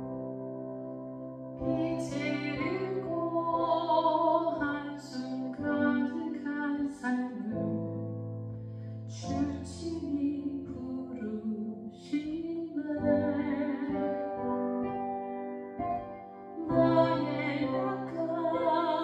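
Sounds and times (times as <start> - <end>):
woman singing into microphone: 1.6 - 7.9, 9.1 - 14.6, 16.6 - 19.0.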